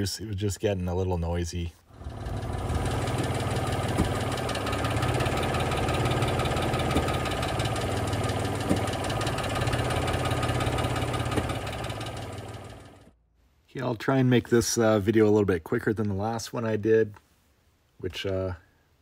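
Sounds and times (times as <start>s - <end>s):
car engine running with clatter: 1.9s - 13.1s
engine knocks: 1.9s - 13.1s.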